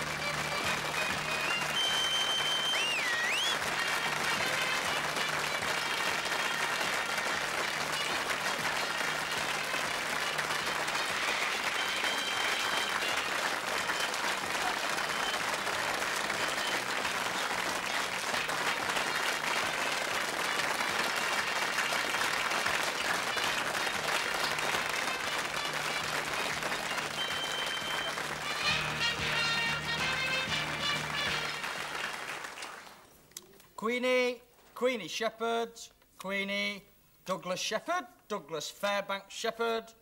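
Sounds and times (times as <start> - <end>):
audience applause: 0.0 - 33.1.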